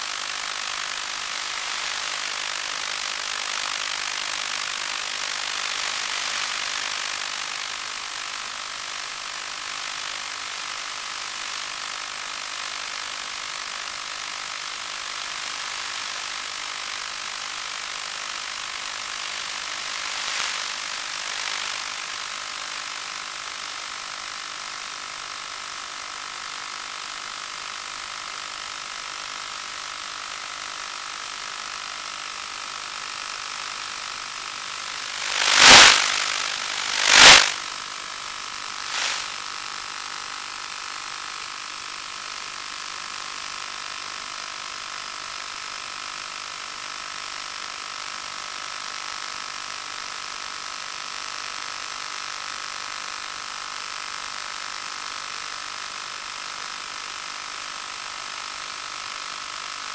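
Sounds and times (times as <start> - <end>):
receiver static hiss: 0.0 - 9.3, 14.3 - 23.5, 34.7 - 37.9, 38.7 - 39.8
static bursts: 19.2 - 22.4, 34.9 - 37.7, 38.9 - 39.4.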